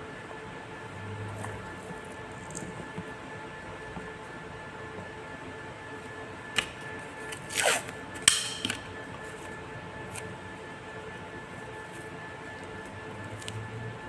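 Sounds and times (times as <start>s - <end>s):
faint steady hum: 0.0s - 14.0s
tape ripping: 7.3s - 8.4s.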